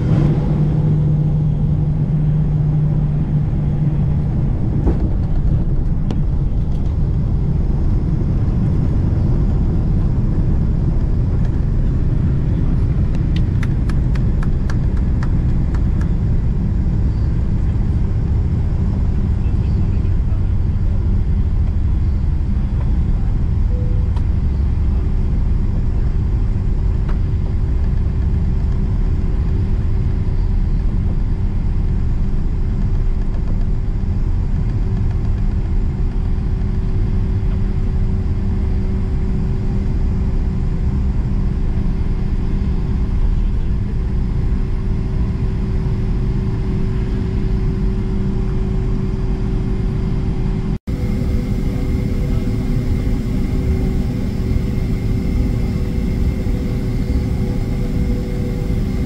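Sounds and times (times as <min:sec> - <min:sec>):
rolling landing gear: 0:00.0 - 0:18.5, 0:46.6 - 0:59.0
steady hum: 0:00.0 - 0:26.4, 0:36.2 - 0:59.0
jet engines idling rumble: 0:00.0 - 0:59.0.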